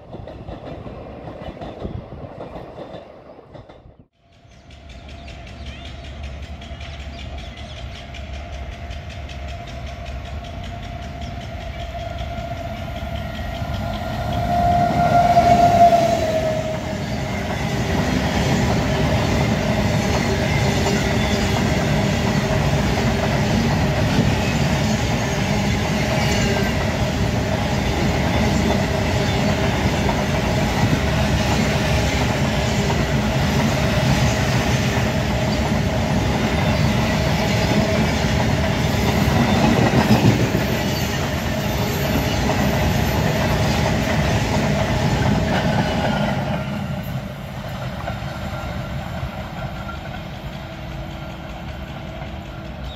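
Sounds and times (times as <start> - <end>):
freight train passing: 0.0 - 52.9
locomotive horn: 10.8 - 17.4.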